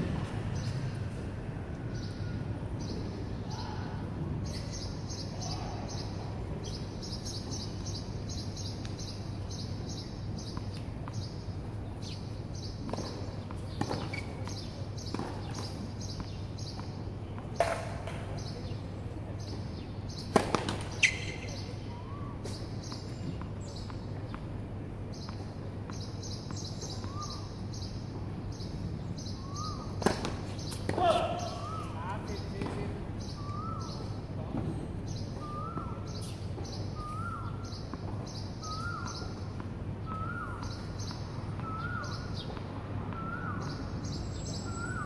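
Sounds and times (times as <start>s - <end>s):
tennis ball bouncing on court: 12.8s - 18.5s, 20.1s - 21.5s, 30.0s - 33.4s.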